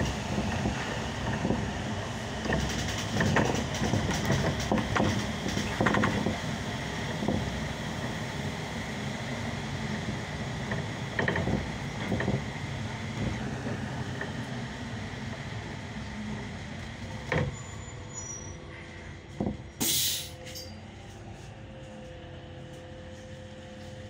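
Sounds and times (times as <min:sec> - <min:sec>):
bus running noise: 0:00.0 - 0:24.0
compressed air hiss: 0:19.8 - 0:20.4.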